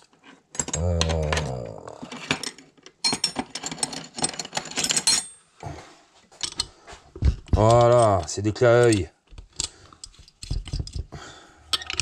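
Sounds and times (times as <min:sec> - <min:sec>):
metal spanners clinking: 0:02.1 - 0:05.5, 0:07.5 - 0:11.1, 0:11.7 - 0:12.0.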